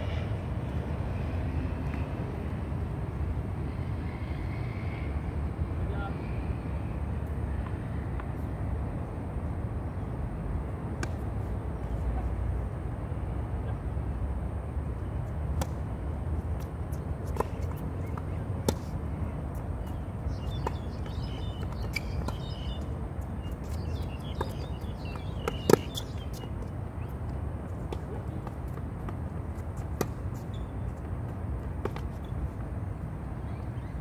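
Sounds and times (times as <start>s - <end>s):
tennis ball bouncing: 15.5s - 15.8s, 16.6s - 26.7s, 27.8s - 32.3s.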